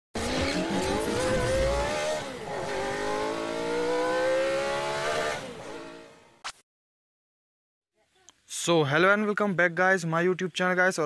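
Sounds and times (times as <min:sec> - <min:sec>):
engine accelerating hard: 0:00.2 - 0:06.4.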